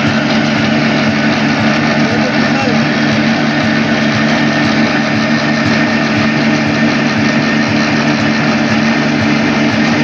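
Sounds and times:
diesel engine running: 0.0 - 10.0
flour mill mechanical din: 0.0 - 10.0.

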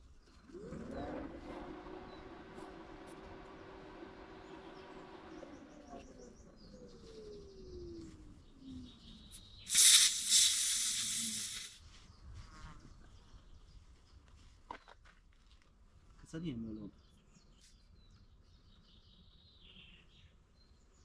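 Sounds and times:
air hissing from tyre: 9.6 - 11.8.

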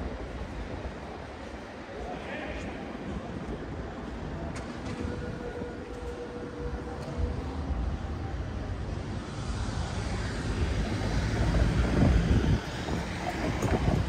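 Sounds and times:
street traffic: 0.0 - 14.0.

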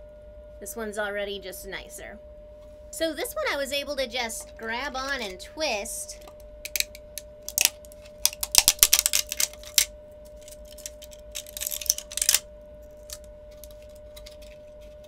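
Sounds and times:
plastic snapping and crackling: 6.2 - 15.0.

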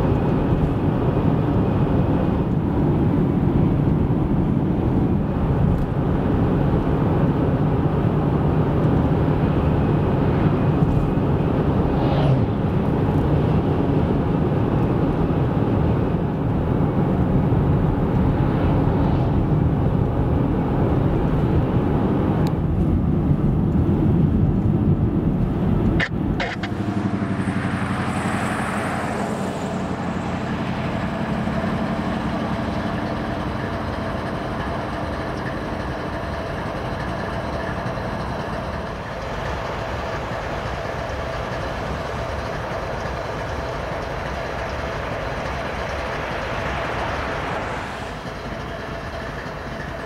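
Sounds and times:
car road noise: 0.0 - 50.0.

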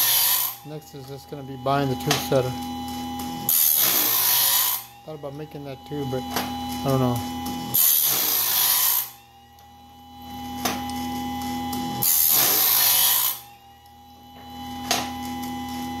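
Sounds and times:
grinding wheel hissing against tooth: 0.0 - 2.6
sharpener motor hum and whine: 0.0 - 16.0.

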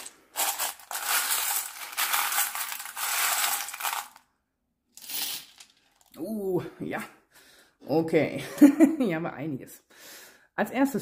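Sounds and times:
charms and beads rattling in metal bowl: 0.0 - 4.2, 5.0 - 6.1.

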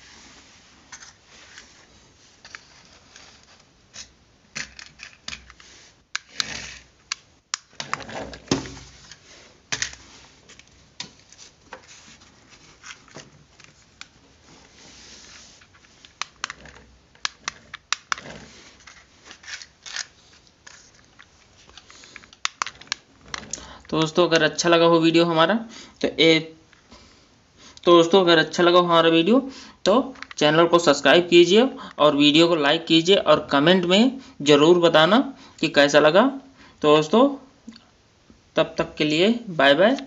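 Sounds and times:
cardboard toy car scraping: 5.6 - 6.9, 16.5 - 21.0.

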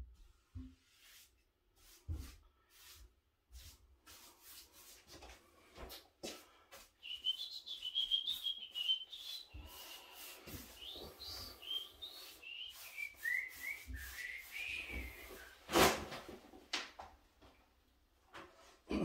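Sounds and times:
paintbrush stroking on wood: 0.5 - 15.6
man whistling a tune: 7.0 - 10.0, 10.8 - 15.6.

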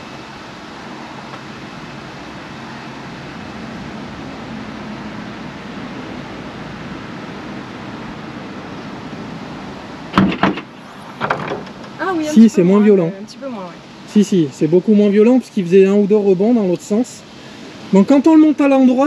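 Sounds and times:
rushing outdoor background noise: 0.0 - 19.0.

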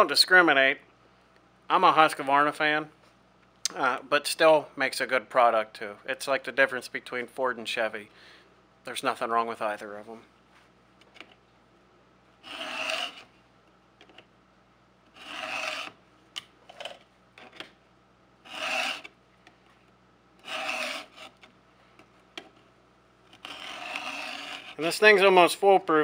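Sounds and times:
faint short scrapes: 12.4 - 13.3, 15.2 - 16.0, 18.5 - 21.5, 23.4 - 24.8
file rasping on chainsaw chain: 12.4 - 13.3, 15.2 - 16.0, 18.5 - 19.1, 20.4 - 21.4, 23.4 - 24.8.

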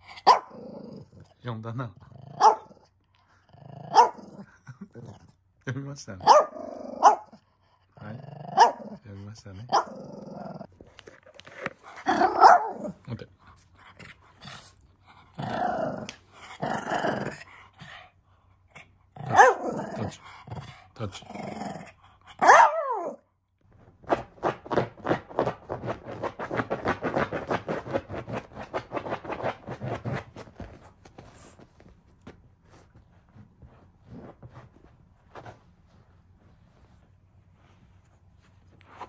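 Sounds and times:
dog growling: 0.0 - 2.8, 3.4 - 5.2, 6.3 - 7.4, 8.0 - 10.7, 11.9 - 13.1, 13.9 - 18.0, 18.8 - 23.2
dog yelping barks: 0.3 - 0.6, 2.4 - 2.7, 3.9 - 4.3, 6.2 - 7.4, 8.6 - 8.9, 12.1 - 12.9, 19.3 - 19.7, 22.4 - 23.2.

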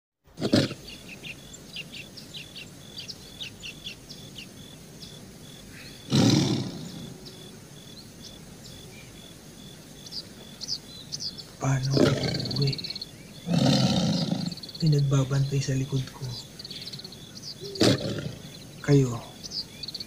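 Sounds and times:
tiger roaring: 0.3 - 1.1, 5.9 - 7.6, 11.6 - 15.6, 16.9 - 18.8
birds chirping: 0.3 - 20.0.

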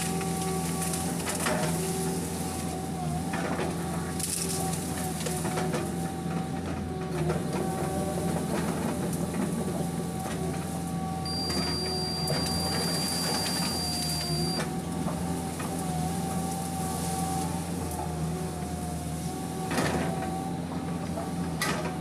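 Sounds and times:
diesel engine running: 0.0 - 22.0
hydraulic whine: 11.2 - 15.9.

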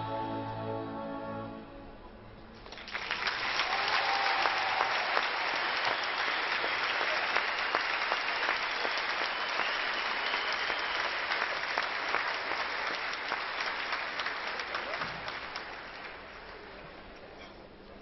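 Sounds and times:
audience applauding: 2.6 - 17.0.

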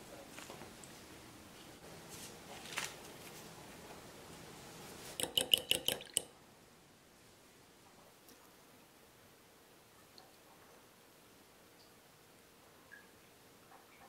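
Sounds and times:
fork clinking against glass bowl: 5.2 - 6.3.

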